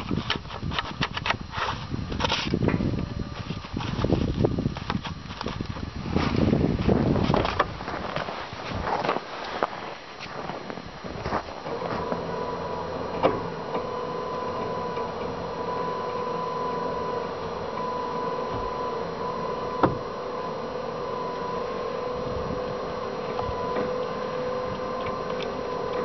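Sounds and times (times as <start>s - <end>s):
electric winch whining: 10.3s - 26.0s.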